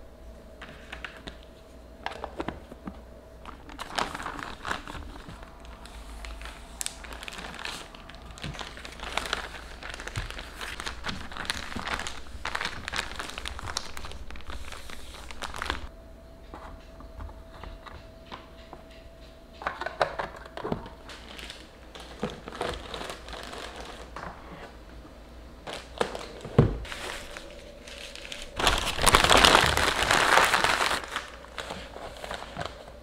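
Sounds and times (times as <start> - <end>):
plastic bag crinkling: 3.4 - 15.9, 20.8 - 24.2, 25.6 - 33.0
paper towel rustling: 3.6 - 15.9, 25.7 - 33.0.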